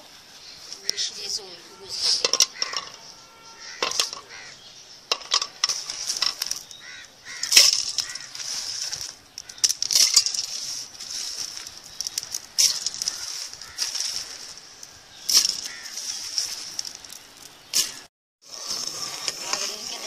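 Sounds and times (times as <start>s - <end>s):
wood fire crackling and hissing: 5.6s - 20.0s.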